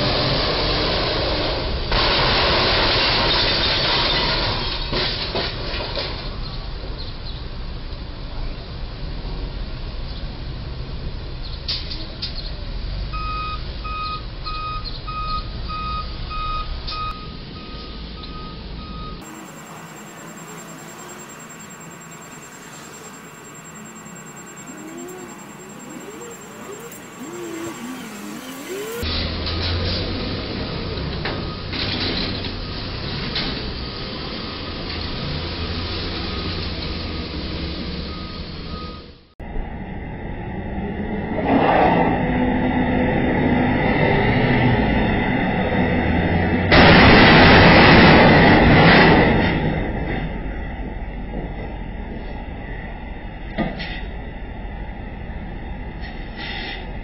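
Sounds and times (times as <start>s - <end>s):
traffic: 3.8s - 57.0s
truck backup alarm beeping: 13.2s - 29.0s
low road hum: 19.2s - 29.1s
truck engine rumble: 19.2s - 29.1s.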